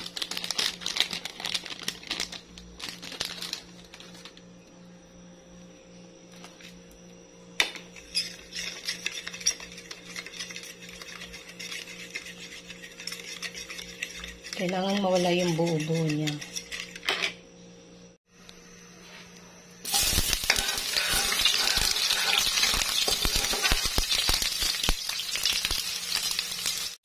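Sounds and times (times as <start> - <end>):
plastic sachet crinkling: 0.0 - 4.4
spoon scraping ceramic bowl: 7.9 - 17.4, 20.5 - 23.9.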